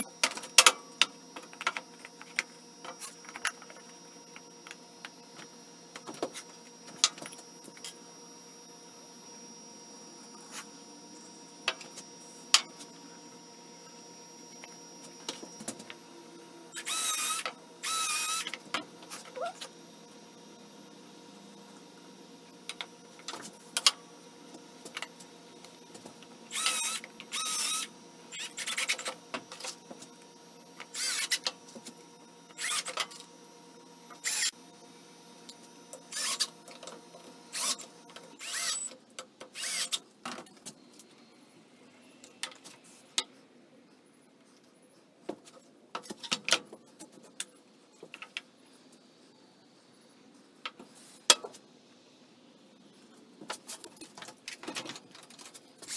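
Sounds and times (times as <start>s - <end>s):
cordless drill driving screws: 16.7s - 18.5s, 26.5s - 28.9s, 30.9s - 31.4s, 32.6s - 33.0s, 36.1s - 36.5s, 37.5s - 37.8s, 38.4s - 38.9s, 39.6s - 40.0s.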